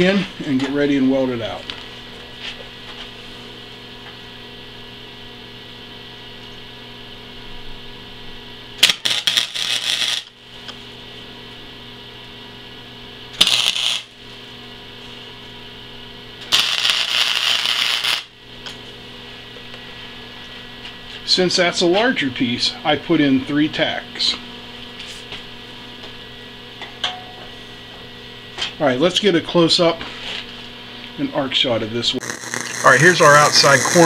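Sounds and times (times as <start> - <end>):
steady electrical hum: 0.0 - 34.0
crackling welding arc: 8.8 - 10.4, 13.3 - 14.2, 16.4 - 18.4, 32.1 - 34.0.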